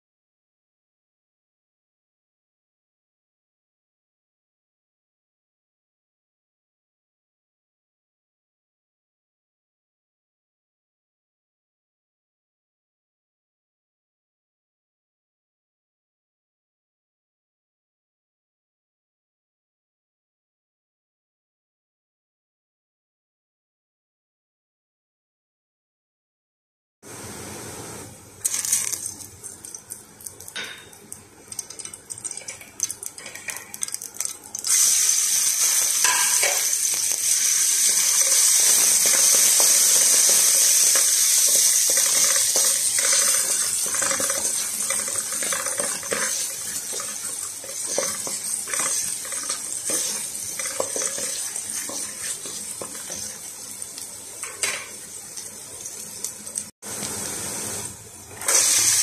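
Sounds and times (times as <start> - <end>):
onion and garlic sizzling in oil: 27.1 - 59.0
spatula scraping and tapping pot: 29.0 - 34.4, 36.0 - 36.8, 39.0 - 55.0.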